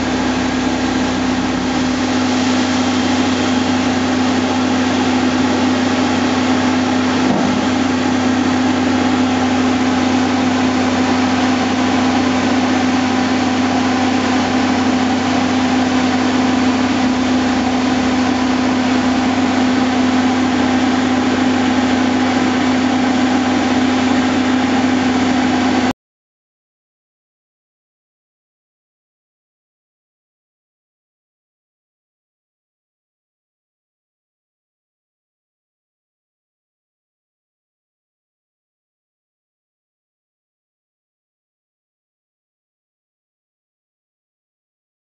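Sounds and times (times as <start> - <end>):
diesel engines droning: 0.0 - 25.9.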